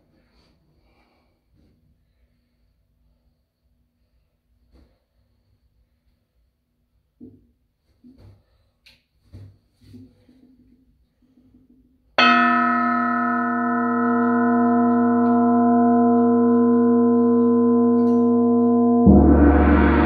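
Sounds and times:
large gong struck: 0:12.2 - 0:20.0
ringing metal percussion tones: 0:12.2 - 0:20.0.

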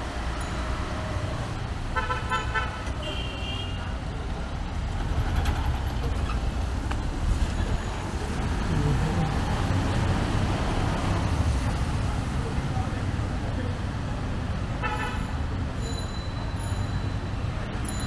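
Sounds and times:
rumble of passing vehicles: 0:00.0 - 0:18.0
car horn beep: 0:01.9 - 0:03.9, 0:14.8 - 0:15.4.

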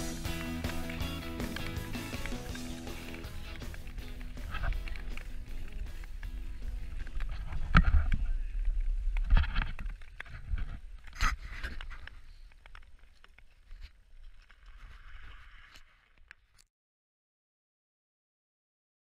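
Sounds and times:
wind rumbling on microphone: 0:03.8 - 0:12.5.

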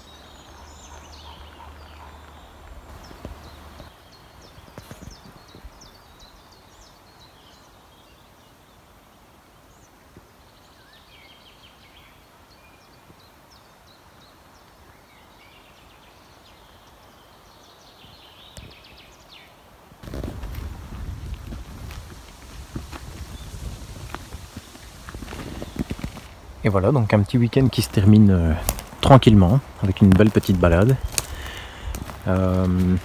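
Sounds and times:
faint outdoor hush: 0:00.0 - 0:07.9, 0:16.3 - 0:33.0
small birds chirping: 0:00.0 - 0:33.0.

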